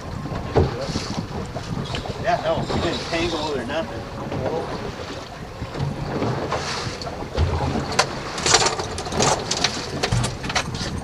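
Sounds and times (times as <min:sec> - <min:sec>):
outboard boat engine running: 0:00.0 - 0:11.0
wind buffeting microphone: 0:00.0 - 0:11.0
sharp knocks and clatters: 0:07.4 - 0:11.0.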